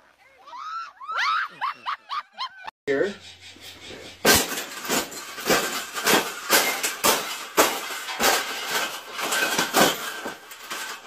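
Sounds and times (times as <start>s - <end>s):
wire cage clanking: 3.7s - 11.0s
man stamping feet: 3.8s - 11.0s.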